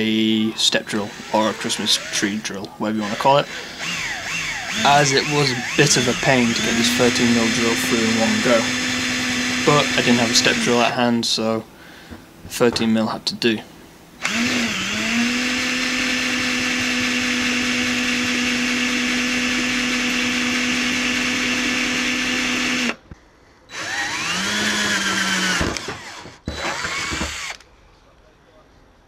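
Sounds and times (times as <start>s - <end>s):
electric drill boring through metal: 0.8s - 10.9s, 14.2s - 23.0s, 23.7s - 27.6s.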